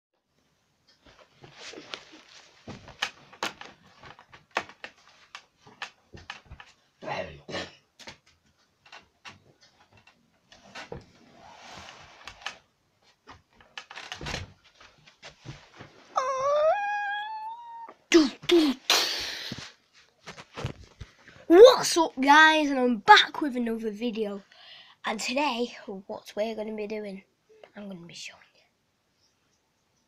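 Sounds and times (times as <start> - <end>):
rustling: 0.9 - 7.0, 8.0 - 16.4, 19.3 - 21.5.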